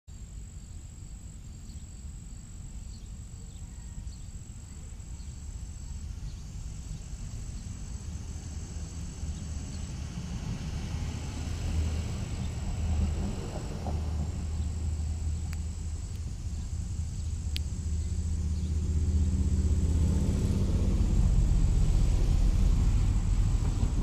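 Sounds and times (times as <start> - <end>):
low rumble: 5.0 - 24.0.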